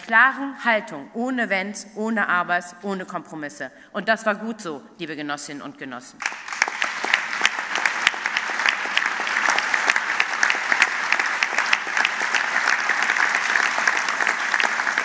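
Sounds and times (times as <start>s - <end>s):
audience applause: 6.2s - 15.0s.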